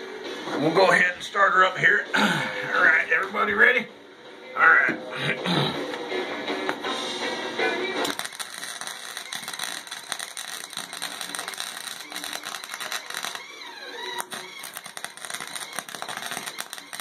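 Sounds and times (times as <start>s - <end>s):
welder arc crackling: 8.0s - 17.0s.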